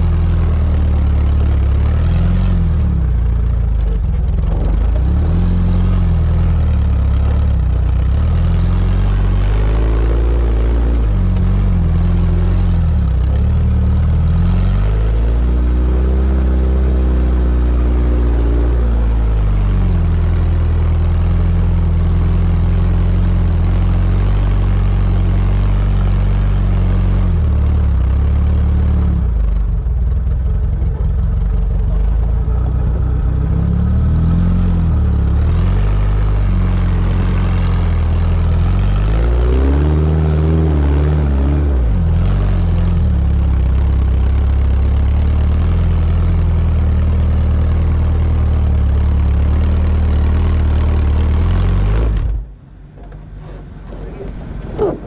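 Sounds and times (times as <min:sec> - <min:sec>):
car engine revving under load: 0:00.0 - 0:55.0.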